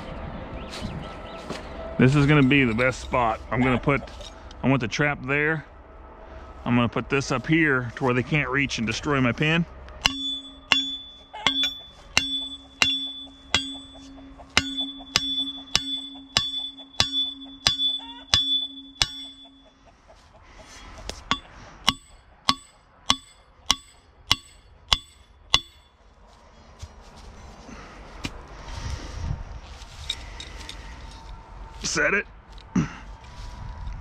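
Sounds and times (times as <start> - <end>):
hammer striking metal rod: 10.0 - 19.7, 21.2 - 26.0.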